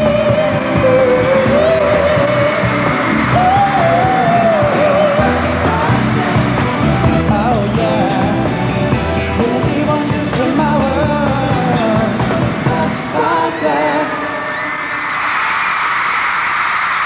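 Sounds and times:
pop-rock band with drums: 0.0s - 14.0s
man singing into microphone: 3.3s - 14.6s.

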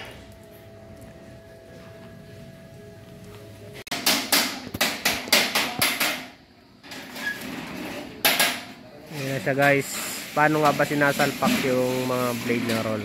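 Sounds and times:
hammer striking hard surface: 3.9s - 6.4s.

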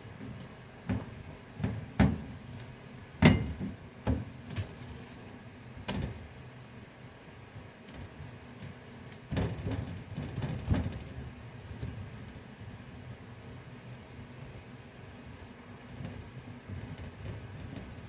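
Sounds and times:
dough thumping on wooden board: 0.8s - 2.4s.

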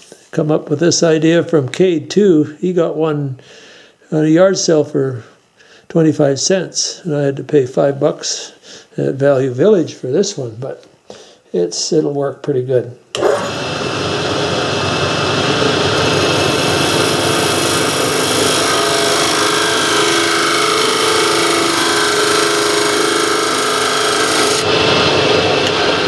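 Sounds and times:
wood lathe running: 13.2s - 26.0s.

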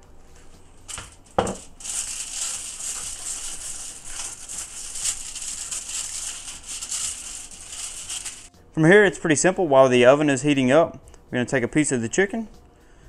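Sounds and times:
aluminium foil crinkling: 0.8s - 8.5s.

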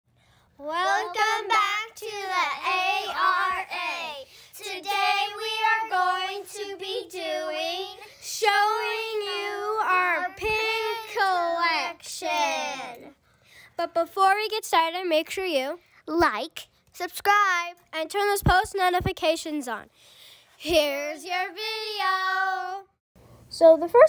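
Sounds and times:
child singing: 0.6s - 13.1s, 20.6s - 23.0s.

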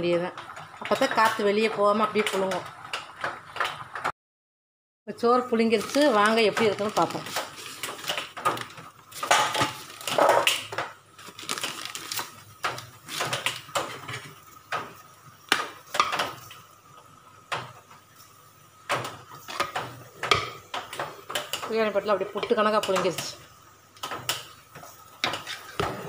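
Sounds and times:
newspaper crinkling: 5.6s - 13.7s
metal spoon scraping a pot: 25.2s - 26.0s.

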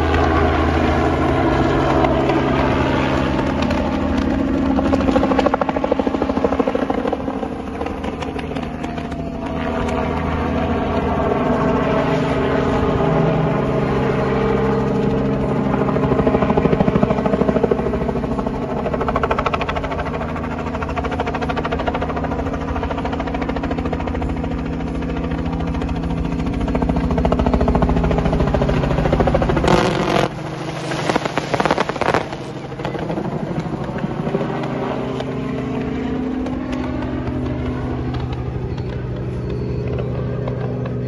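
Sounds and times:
helicopter engine and rotor: 0.0s - 41.0s
firework crackles and bangs: 29.7s - 32.6s.

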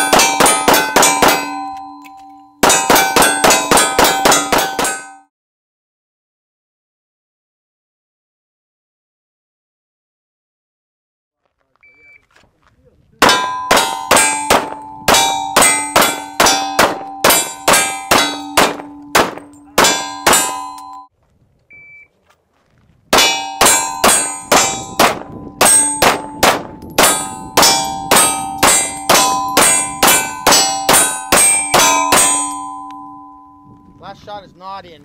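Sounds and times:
steel targets ringing: 0.0s - 5.3s, 13.2s - 21.1s, 23.2s - 34.1s
rapid pistol fire: 13.2s - 20.6s, 23.2s - 32.5s.

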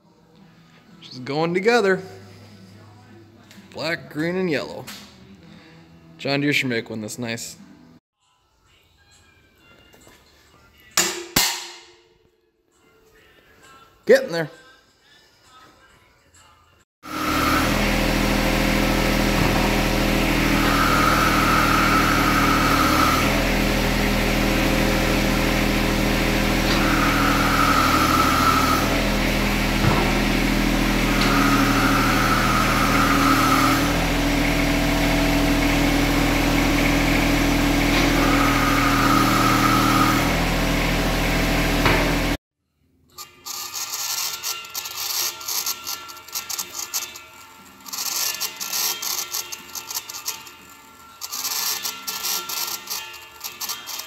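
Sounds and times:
diesel tractor engine running: 17.0s - 42.4s
hydraulic whine: 17.0s - 42.4s.

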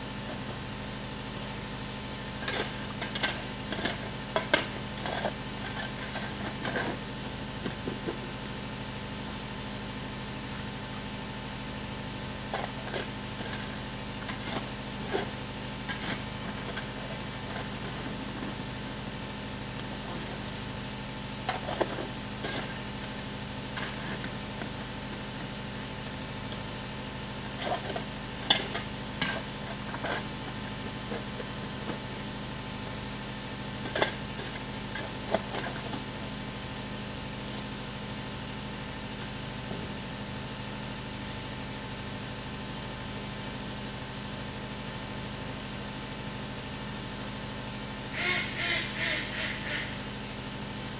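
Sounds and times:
low mechanical hum: 0.0s - 50.9s
metal shovel scraping gravelly ground: 2.4s - 7.1s, 21.4s - 25.6s, 27.3s - 32.2s.

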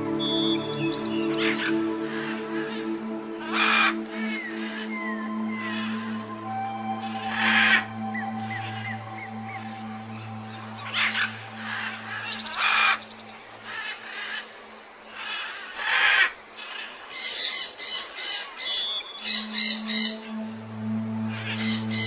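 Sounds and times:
low music drone: 0.0s - 13.9s, 19.2s - 22.0s.

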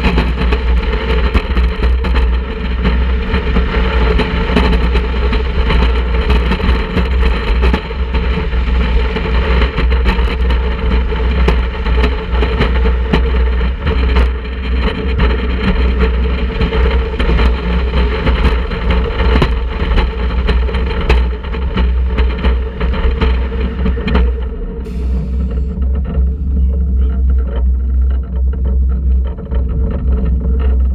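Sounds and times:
roller coaster rumbling: 20.2s - 30.9s.

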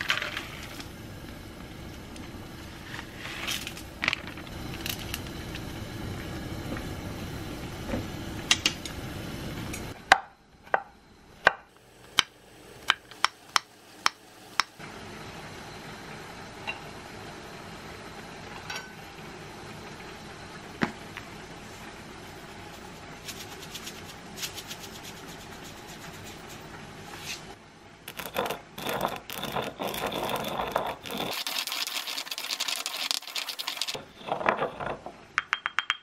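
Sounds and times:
broth simmering in a pan: 11.8s - 24.4s.

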